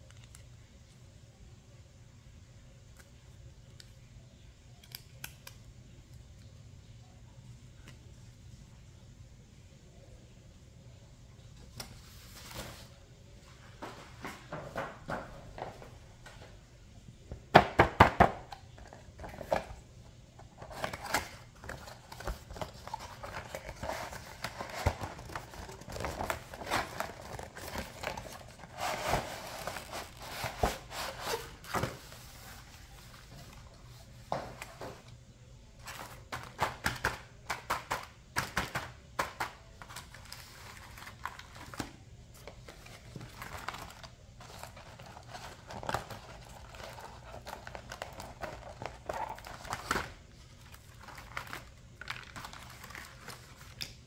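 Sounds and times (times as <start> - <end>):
plastic packaging crinkling: 20.5 - 34.2, 35.8 - 54.0.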